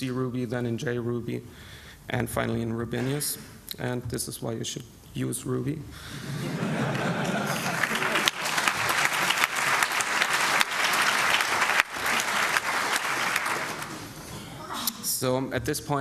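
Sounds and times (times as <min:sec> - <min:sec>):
audience applauding: 0:06.4 - 0:14.2.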